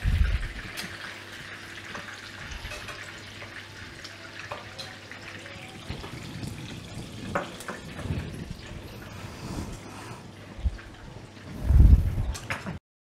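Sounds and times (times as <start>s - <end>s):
ribs sizzling in frying pan: 0.0s - 11.5s
metal tongs clicking on pan: 2.7s - 3.1s.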